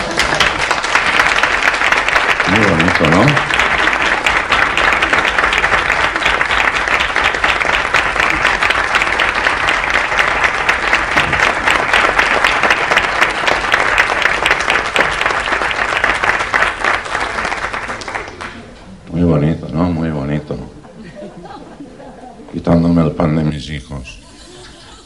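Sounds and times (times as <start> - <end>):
studio audience applauding: 0.0 - 18.7.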